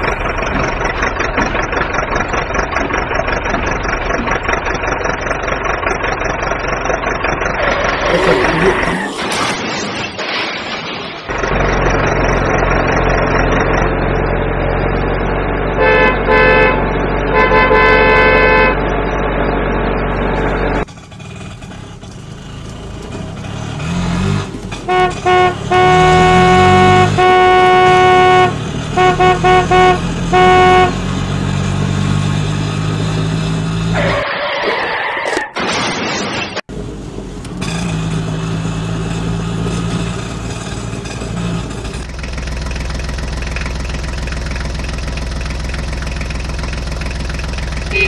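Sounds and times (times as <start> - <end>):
engine running: 0.0 - 34.2, 36.7 - 48.0
engine revving: 0.0 - 34.3, 36.9 - 48.0
horn honks: 15.7 - 19.0, 24.8 - 31.4, 47.8 - 48.0.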